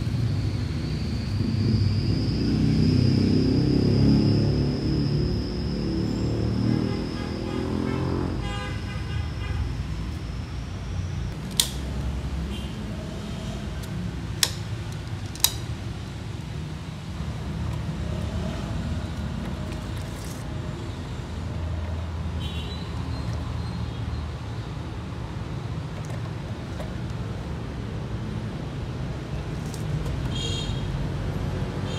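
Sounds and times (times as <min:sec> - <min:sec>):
low rumble of road traffic: 0:00.0 - 0:31.9
plastic parts clicking together: 0:13.8 - 0:15.7.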